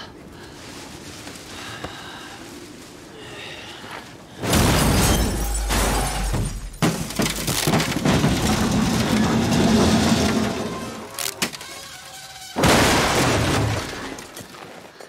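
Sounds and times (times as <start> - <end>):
metal structure crashing: 4.4 - 14.4
clattering metal and debris: 4.4 - 14.6.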